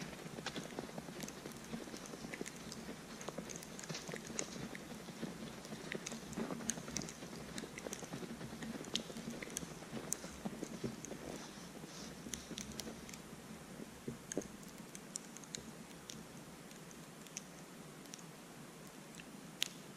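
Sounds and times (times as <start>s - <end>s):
footsteps crunching in snow: 0.0s - 12.2s
light ticks: 0.0s - 19.9s.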